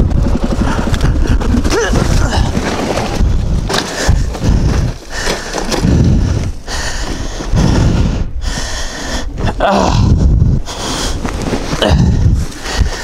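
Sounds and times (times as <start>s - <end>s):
knocks and gravel scraping: 0.1s - 7.4s, 10.8s - 13.0s
person groaning and breathing hard: 0.6s - 2.7s, 4.0s - 13.0s.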